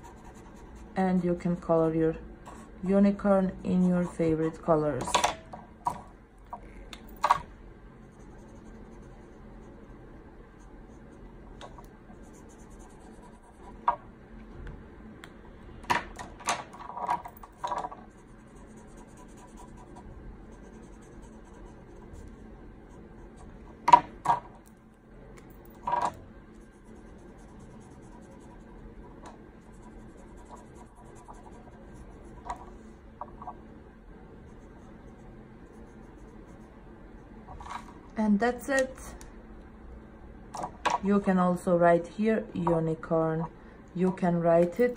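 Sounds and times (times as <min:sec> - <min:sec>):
felt-tip markers scratching paper: 0:00.0 - 0:01.0, 0:12.2 - 0:13.8, 0:18.0 - 0:23.6, 0:26.6 - 0:28.8, 0:29.6 - 0:32.5.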